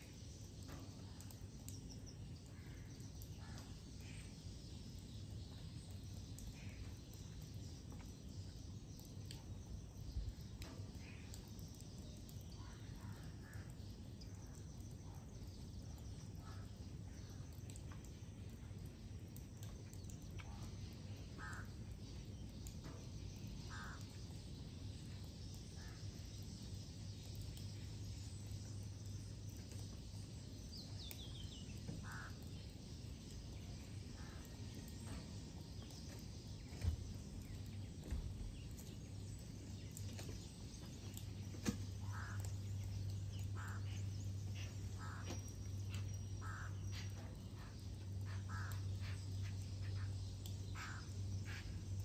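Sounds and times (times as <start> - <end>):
steady low hum: 0.0 - 52.0
birds harsh calls: 21.2 - 22.0, 23.6 - 24.4, 30.8 - 32.8, 40.1 - 52.0.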